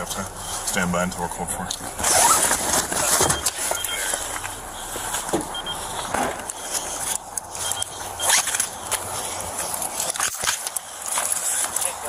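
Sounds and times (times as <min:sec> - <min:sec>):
footsteps: 0:01.7 - 0:12.0
clothing and gear rustling: 0:01.8 - 0:12.0.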